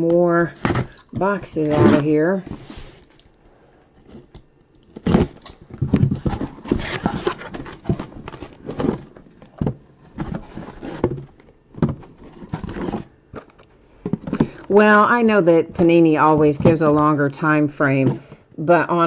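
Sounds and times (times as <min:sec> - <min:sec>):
cardboard rubbing: 0:06.0 - 0:09.2, 0:10.1 - 0:11.3, 0:11.9 - 0:13.1.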